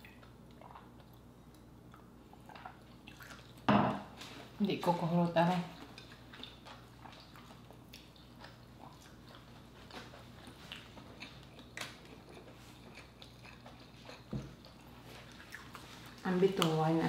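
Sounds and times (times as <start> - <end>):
people chewing: 5.7 - 16.8.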